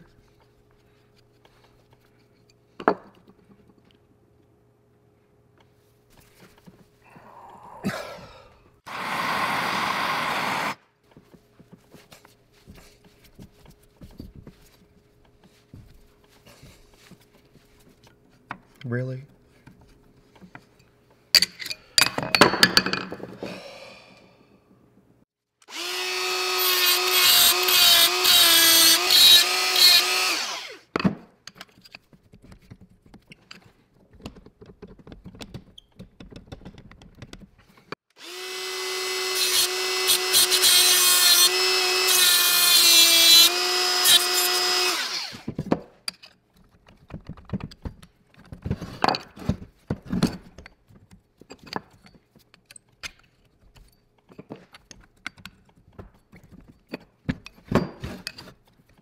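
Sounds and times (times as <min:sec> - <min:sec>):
electric drill whining: 0:08.9 - 0:10.8, 0:25.6 - 0:30.9, 0:38.2 - 0:45.5.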